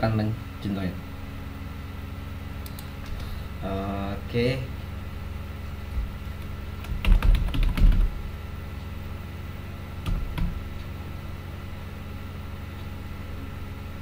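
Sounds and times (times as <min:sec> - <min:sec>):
keyboard keystrokes: 0:06.8 - 0:08.1.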